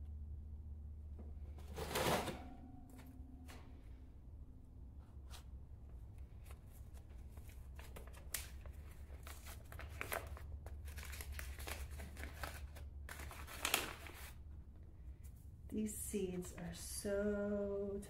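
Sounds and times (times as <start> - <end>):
paper packet rustling: 6.4 - 14.4.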